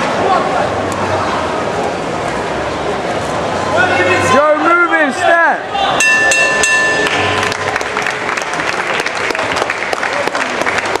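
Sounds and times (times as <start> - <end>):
boxing ring bell ringing: 6.0 - 7.6
crowd clapping and cheering: 6.6 - 11.0.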